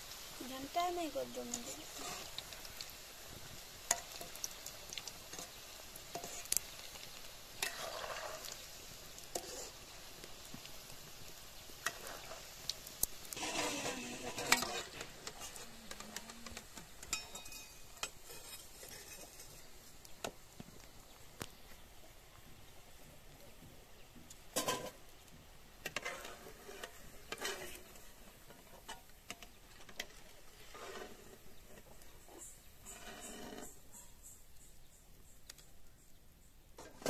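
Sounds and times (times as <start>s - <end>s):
deep-frying sizzle: 0.0s - 37.0s
skimmer clinking and scraping pan: 0.4s - 2.5s, 5.2s - 8.6s, 13.3s - 19.7s, 24.5s - 25.0s.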